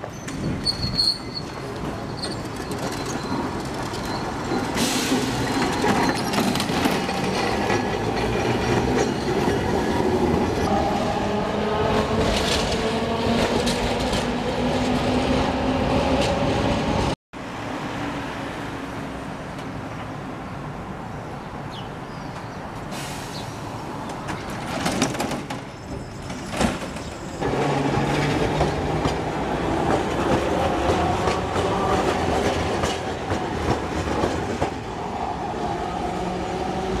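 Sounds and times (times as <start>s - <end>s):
tram wheels rumbling on track: 0.0s - 17.2s, 23.0s - 37.0s
tram whine: 0.0s - 20.1s, 22.9s - 37.0s
tram humming: 0.0s - 21.7s, 22.4s - 37.0s.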